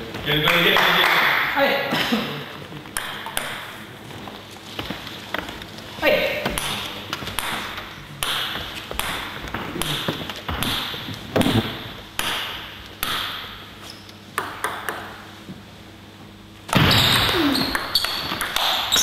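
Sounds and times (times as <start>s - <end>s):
table tennis ball bouncing: 6.5s - 13.5s, 14.4s - 15.2s, 16.8s - 19.0s.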